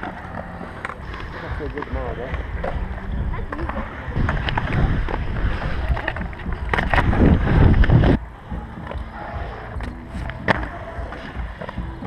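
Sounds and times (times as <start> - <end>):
skate wheels rolling on concrete: 0.0 - 12.0
wind buffeting microphone: 1.0 - 9.1.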